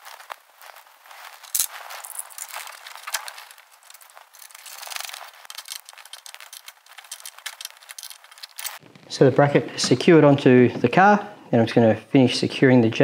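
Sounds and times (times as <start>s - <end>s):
metal clicks and scrapes: 1.4s - 8.8s.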